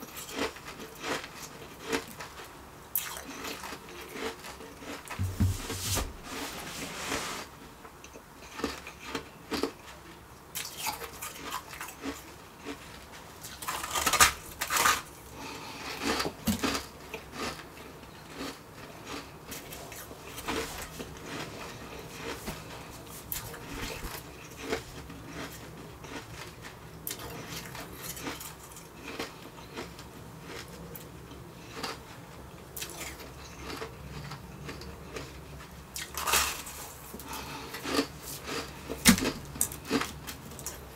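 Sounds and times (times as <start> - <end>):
ice crunching as it is chewed: 0.0 - 5.2, 8.0 - 32.1, 32.8 - 40.9.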